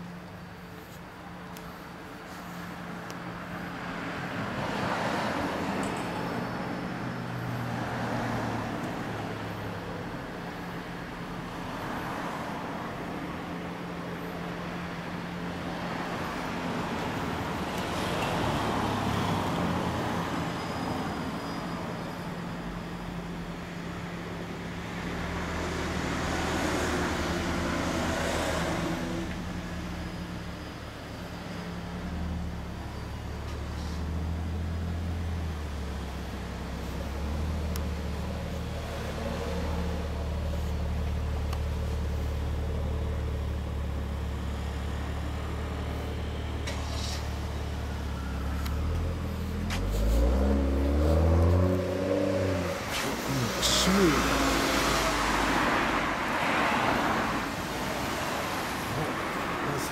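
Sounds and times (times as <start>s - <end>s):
cars passing: 0.0s - 59.9s
low engine hum: 24.3s - 59.9s.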